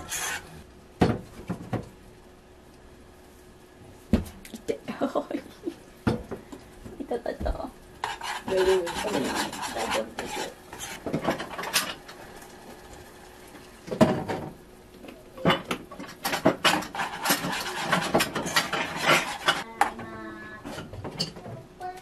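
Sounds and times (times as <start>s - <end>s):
metal spoon scraping saucepan: 0.0s - 0.5s, 8.0s - 12.0s, 16.0s - 19.7s.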